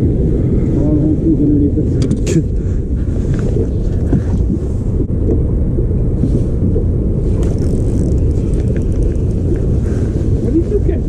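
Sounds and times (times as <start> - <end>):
wind buffeting microphone: 0.0 - 11.0
faint ticks: 7.4 - 9.7.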